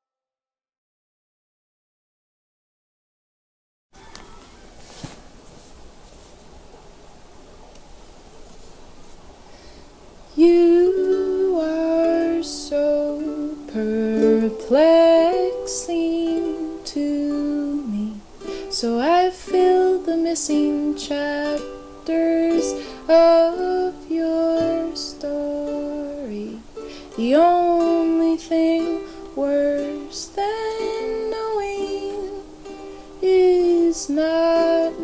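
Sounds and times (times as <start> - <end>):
woman singing: 10.3 - 35.0.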